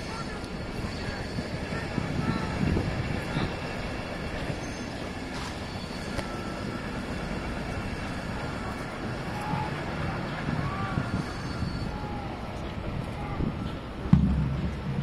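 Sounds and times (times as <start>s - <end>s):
low outdoor rumble: 0.0s - 15.0s.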